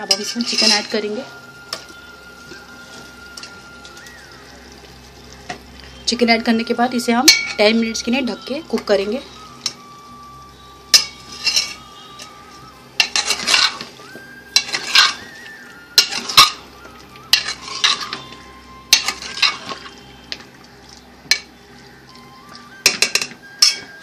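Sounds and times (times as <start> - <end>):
oil sizzling: 0.0 - 24.0
steel ladle scraping a pot: 0.1 - 3.6, 10.9 - 15.4, 16.0 - 16.7, 17.3 - 20.5.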